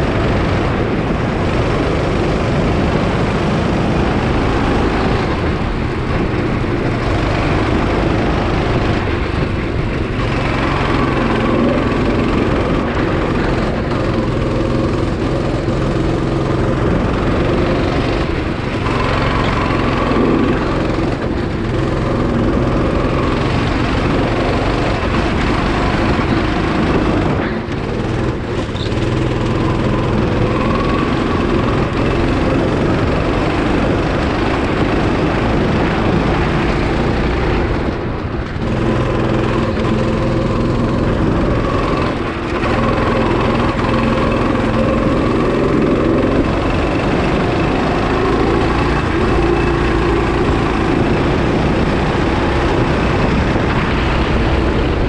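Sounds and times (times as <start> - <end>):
go-kart engine running hard: 0.0 - 55.0.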